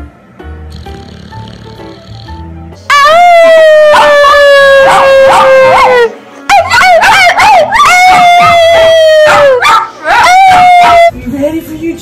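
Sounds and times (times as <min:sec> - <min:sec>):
dog yelping: 0:02.9 - 0:11.1
small dog howling: 0:02.9 - 0:11.1.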